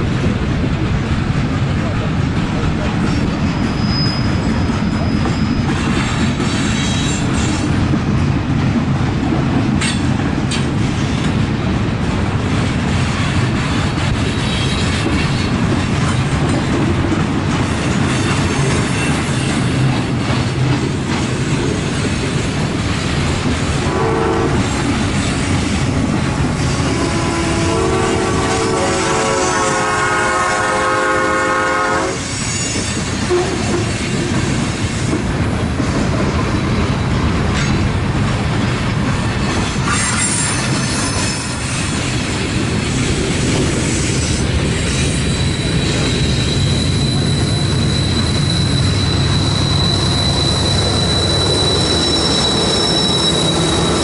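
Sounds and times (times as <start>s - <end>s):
freight train rumble and clatter: 0.0s - 54.0s
train horn: 23.8s - 24.8s, 26.6s - 33.9s.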